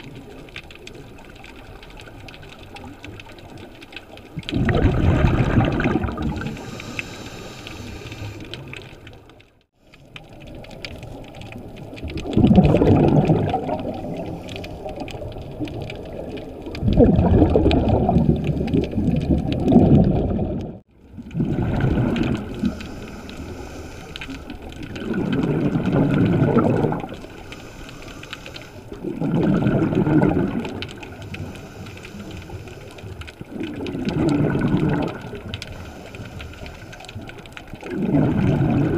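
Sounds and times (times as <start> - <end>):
exhaust bubbles rushing: 4.4 - 6.6, 12.1 - 14.2, 16.8 - 22.8, 24.8 - 27.2, 29.0 - 31.0, 33.5 - 35.4, 37.8 - 38.9
regulator breathing hiss: 6.6 - 8.6, 22.6 - 24.6, 27.3 - 28.9, 31.2 - 32.9.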